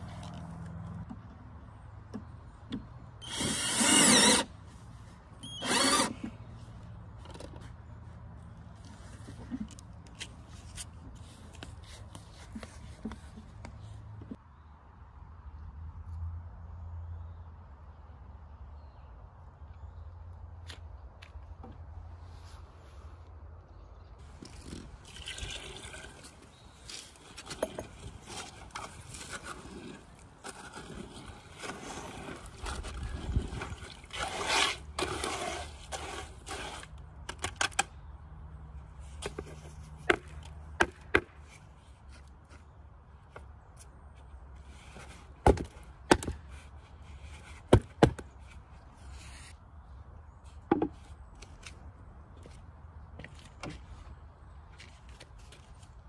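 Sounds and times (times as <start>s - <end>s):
water poured into concrete mix: 24.9s - 26.4s
trowel scraping and stirring: 25.6s - 37.0s.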